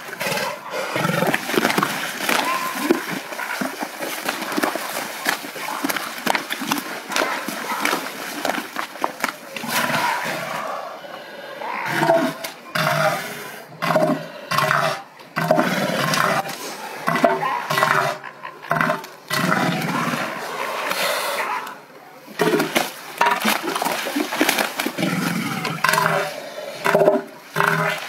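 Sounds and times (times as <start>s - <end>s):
elephant seals grunting: 0.0s - 3.8s, 9.5s - 22.7s
elephant seal threat calls: 2.3s - 3.0s.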